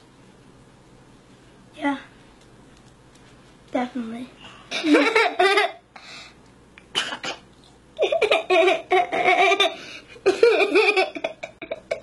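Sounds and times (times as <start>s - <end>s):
boy laughing: 4.7s - 5.8s, 8.0s - 12.0s.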